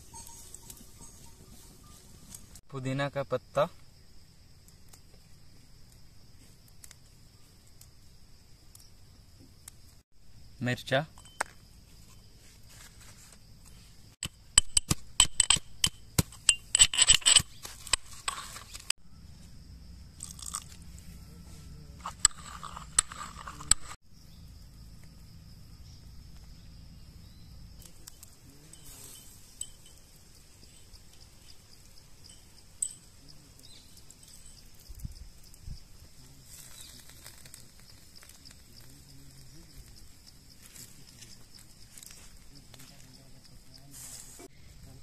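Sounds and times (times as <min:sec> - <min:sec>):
soft grinding: 0:12.0 - 0:18.9, 0:20.2 - 0:24.0.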